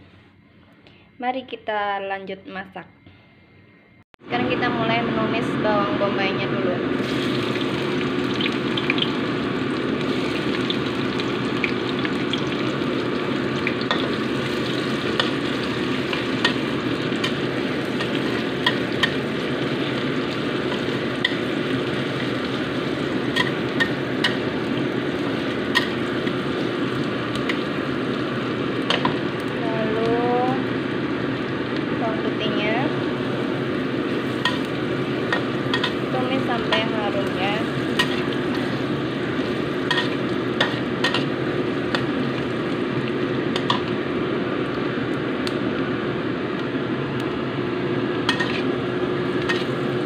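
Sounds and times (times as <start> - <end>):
onion sizzling in hot oil: 6.9 - 50.0
oil ticking and popping: 7.3 - 29.6
metal spatula on wok: 37.9 - 38.8, 39.8 - 41.3, 48.2 - 48.7, 49.4 - 49.8.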